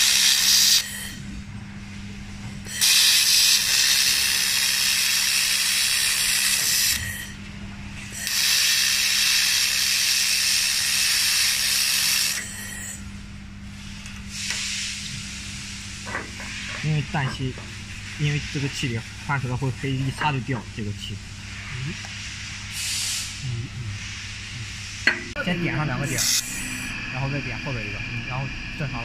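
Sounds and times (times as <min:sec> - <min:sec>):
laser welder hissing and sizzling: 0:00.0 - 0:01.2, 0:02.7 - 0:07.4, 0:08.1 - 0:13.0, 0:24.2 - 0:27.0
steady low hum: 0:00.0 - 0:29.0.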